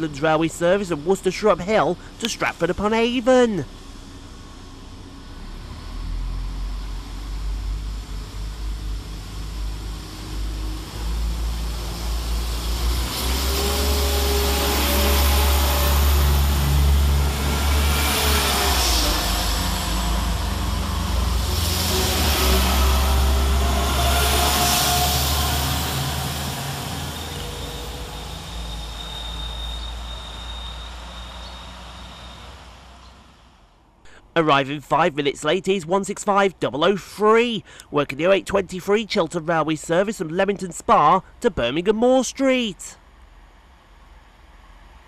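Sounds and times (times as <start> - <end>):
wheels on rails: 0.0 - 33.8
train whine: 0.0 - 34.4, 43.0 - 45.0
diesel train rumble: 0.0 - 45.0.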